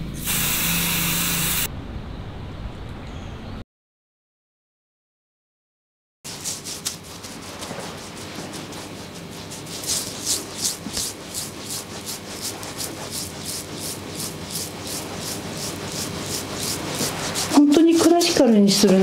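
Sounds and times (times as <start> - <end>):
fingertips rubbing shaving lather: 6.3 - 19.0.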